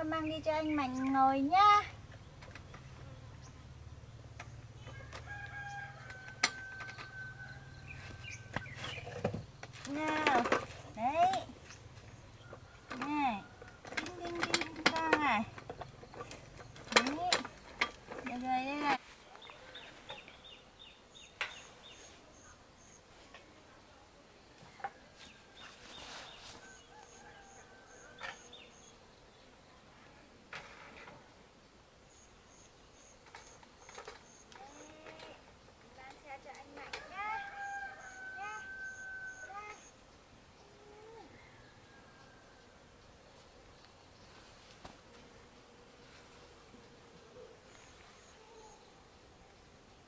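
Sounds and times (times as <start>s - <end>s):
stroller clicks and knocks: 12.9s - 18.5s.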